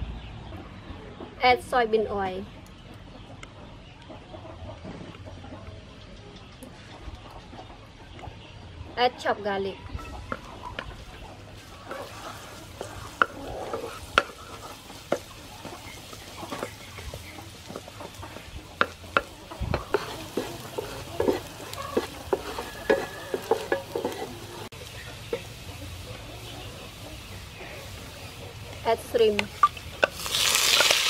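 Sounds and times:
garlic sizzling in oil: 10.2 - 31.0
wooden spatula scraping pan: 10.3 - 28.1.

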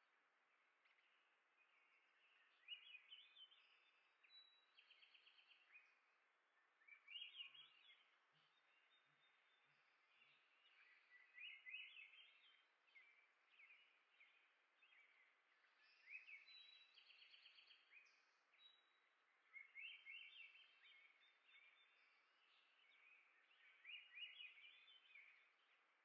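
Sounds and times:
songbirds chirping: 0.0 - 26.0.

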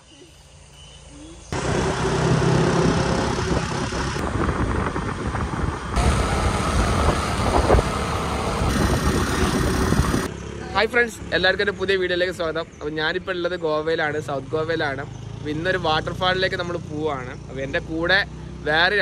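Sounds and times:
scooter engine hum: 1.0 - 12.8
rushing air noise: 1.6 - 10.3.

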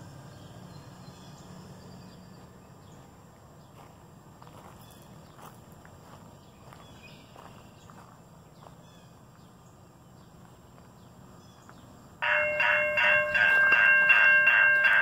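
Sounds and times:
faint outdoor background: 0.0 - 15.0
crossing bell ringing: 12.2 - 15.0.

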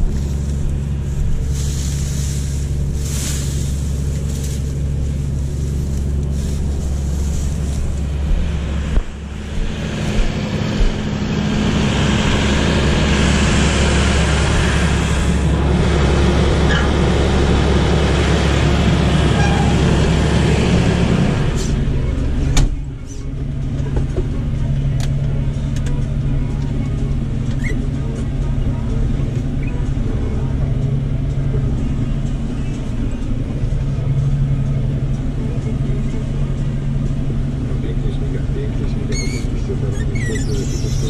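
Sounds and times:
rushing noise: 0.0 - 23.0
combine harvester engine running: 0.0 - 41.0.

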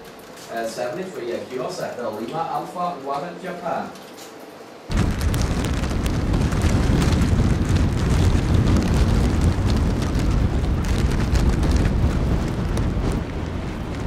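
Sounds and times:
strong wind buffeting microphone: 4.9 - 14.0.

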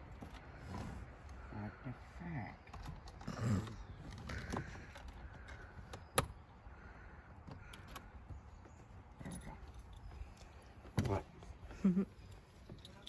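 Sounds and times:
keys jingling: 12.2 - 13.0.

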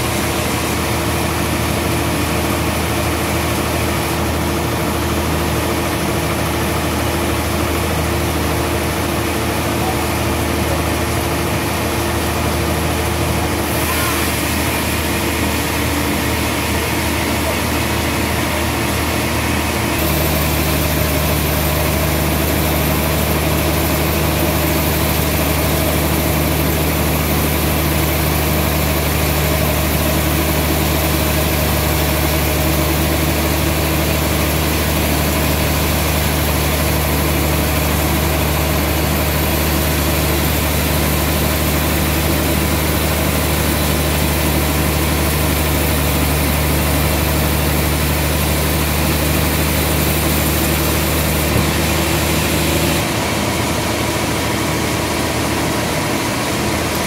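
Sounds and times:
band sawmill cutting log: 0.0 - 57.0.

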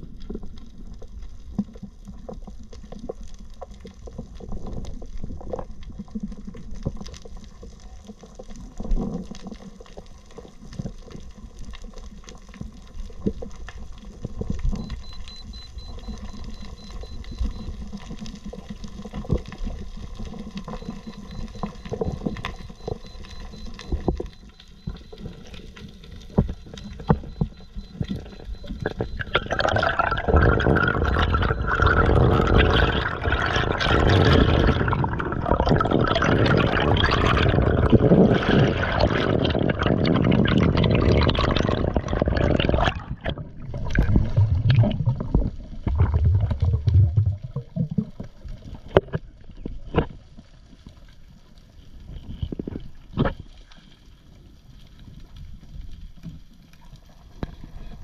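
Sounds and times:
water sloshing and gurgling: 0.0 - 58.0
underwater clicks: 18.6 - 50.2.

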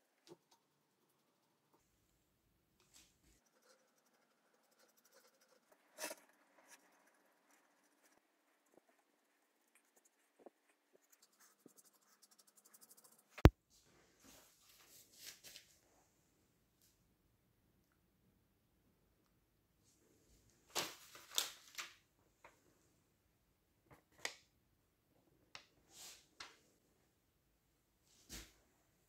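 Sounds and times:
paintbrush scratching on wood: 3.3 - 13.5.

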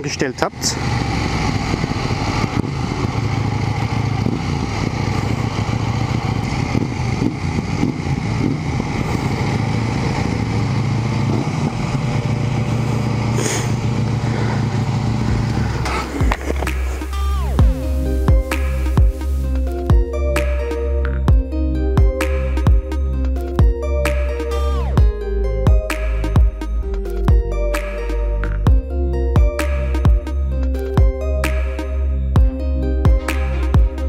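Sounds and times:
motorcycle engine running: 0.0 - 34.0
electronic music: 15.8 - 34.0.

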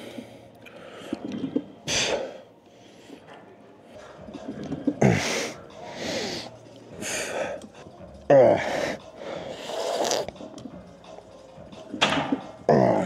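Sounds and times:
man breathing hard: 5.0 - 7.9, 8.5 - 10.2
man grunting: 8.3 - 8.9, 12.7 - 13.0.

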